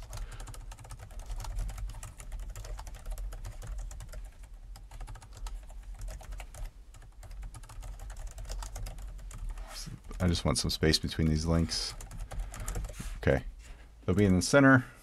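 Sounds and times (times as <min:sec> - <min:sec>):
typing on computer keyboard: 0:00.0 - 0:10.3, 0:11.8 - 0:13.0.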